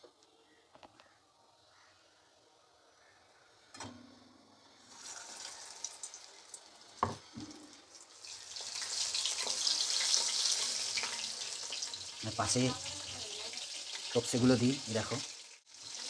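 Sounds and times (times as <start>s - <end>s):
battered fish sizzling in oil: 4.6s - 16.0s.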